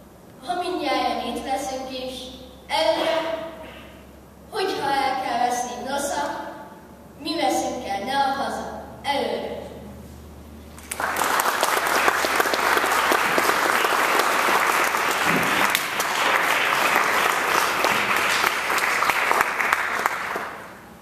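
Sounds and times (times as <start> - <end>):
audience applauding: 10.8 - 20.8.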